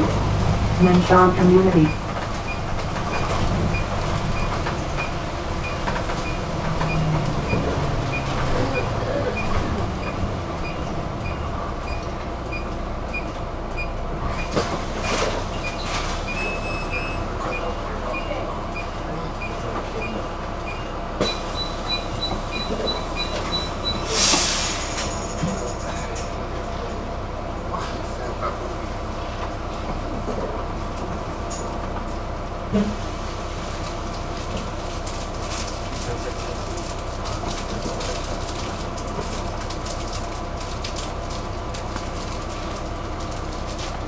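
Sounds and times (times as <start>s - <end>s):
bus engine and road rumble: 0.0s - 44.0s
short loud air hiss: 24.2s - 25.0s.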